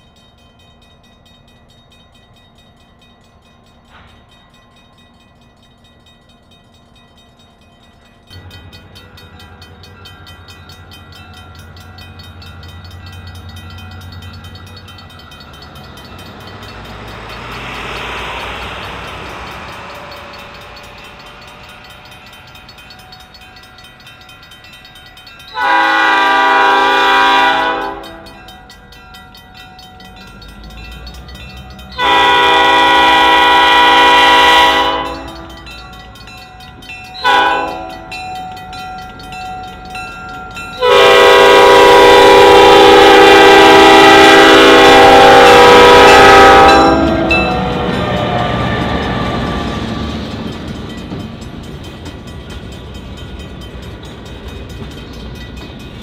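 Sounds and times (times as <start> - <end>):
locomotive rumble: 2.7 - 56.0
locomotive air horn blasts: 25.6 - 28.4, 32.0 - 35.5, 37.2 - 38.1, 40.8 - 49.8.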